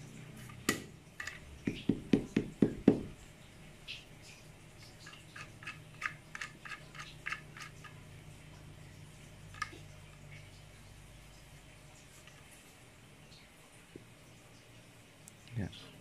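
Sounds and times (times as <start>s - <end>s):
dull knocks: 1.7s - 3.1s.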